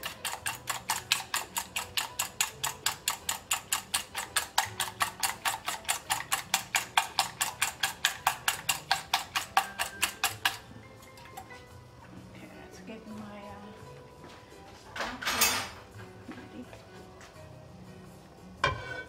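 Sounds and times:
whisk clicking in metal bowl: 0:00.0 - 0:11.5.

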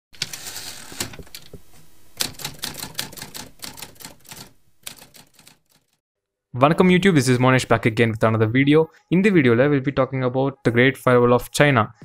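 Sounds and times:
rapid keyboard key clicks: 0:02.2 - 0:06.0.

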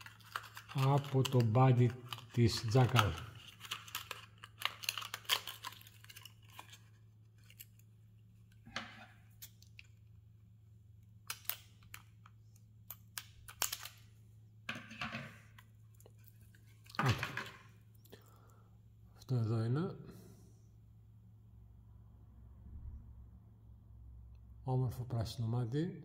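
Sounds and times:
scissors snipping plastic: 0:00.0 - 0:06.8
plastic crinkling: 0:00.0 - 0:08.7
faint low hum: 0:00.0 - 0:26.0.

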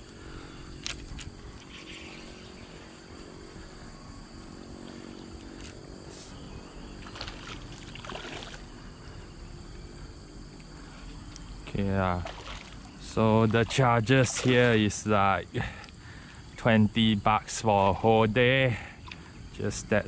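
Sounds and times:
steady outdoor hum: 0:00.0 - 0:20.0
fish splashing in water: 0:07.0 - 0:08.8, 0:12.1 - 0:14.8.

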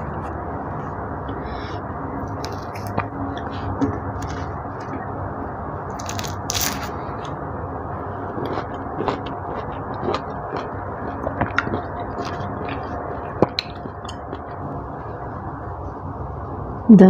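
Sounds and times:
orange rind tearing: 0:05.9 - 0:06.9.

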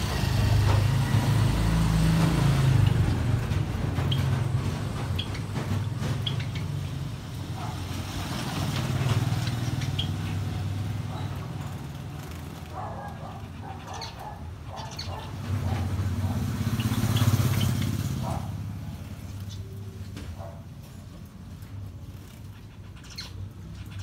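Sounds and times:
passing traffic rumble: 0:00.0 - 0:24.0
finches chirping: 0:09.0 - 0:11.8, 0:12.7 - 0:18.5, 0:22.5 - 0:24.0.

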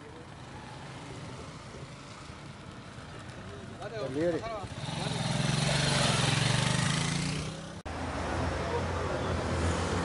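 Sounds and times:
vehicle engines running: 0:00.0 - 0:07.8.

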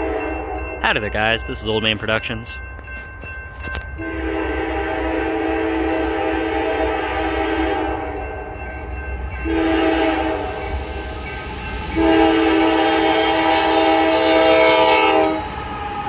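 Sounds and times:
low train rumble: 0:00.0 - 0:16.0
locomotive air horn: 0:04.0 - 0:08.2, 0:09.4 - 0:10.6, 0:12.0 - 0:15.6.

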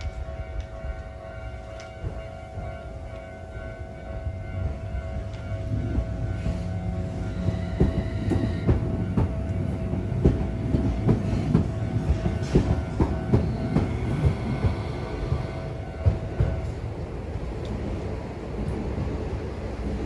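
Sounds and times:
crossing warning bell ringing: 0:00.0 - 0:17.3
tram rumbling: 0:00.0 - 0:20.0
wheels clacking over rail joints: 0:07.2 - 0:17.9.

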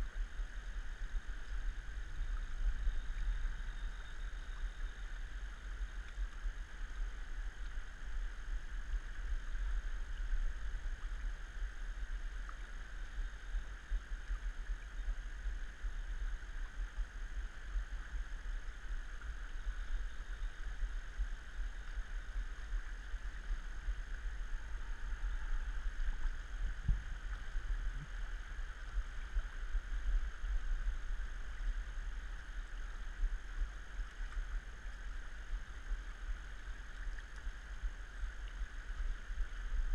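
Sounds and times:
faint high whine: 0:00.0 - 0:39.9
low rumble: 0:17.7 - 0:38.7.

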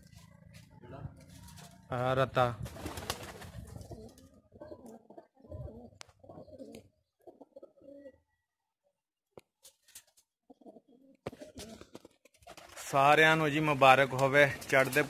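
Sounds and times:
pigeons cooing: 0:02.8 - 0:08.4, 0:10.5 - 0:12.7.

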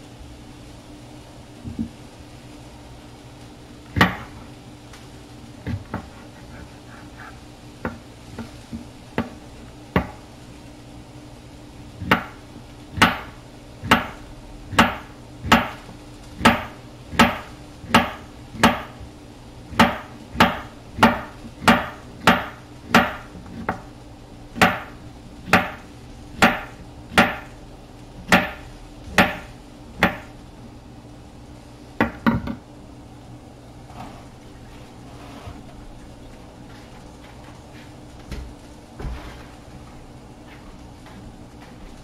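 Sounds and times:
knife chopping on wooden board: 0:04.0 - 0:04.3, 0:12.0 - 0:12.4, 0:13.0 - 0:13.3, 0:13.9 - 0:15.8, 0:16.4 - 0:19.0, 0:19.8 - 0:23.9, 0:24.6 - 0:25.8, 0:26.4 - 0:27.5, 0:28.3 - 0:30.3.

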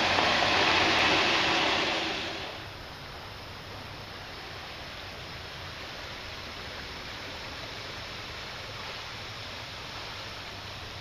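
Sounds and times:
floodwater rushing: 0:00.0 - 0:02.8.

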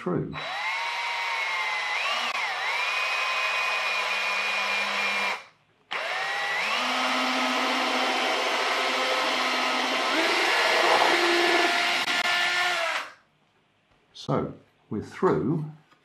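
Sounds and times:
small electric motor whining: 0:06.0 - 0:13.1.

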